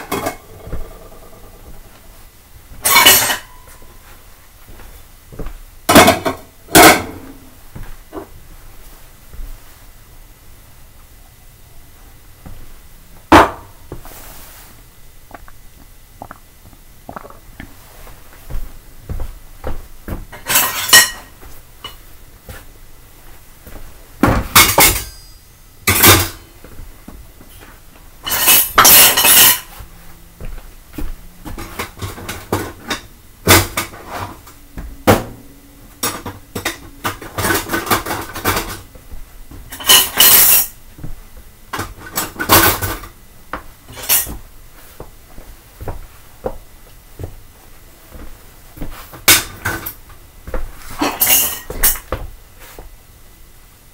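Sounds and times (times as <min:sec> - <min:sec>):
plates and cutlery clattering: 0:00.0 - 0:01.6, 0:02.8 - 0:03.8, 0:05.9 - 0:07.4, 0:20.4 - 0:21.3, 0:24.3 - 0:26.5, 0:28.2 - 0:29.7, 0:36.0 - 0:38.9, 0:39.7 - 0:40.8, 0:43.9 - 0:44.4, 0:51.0 - 0:52.1.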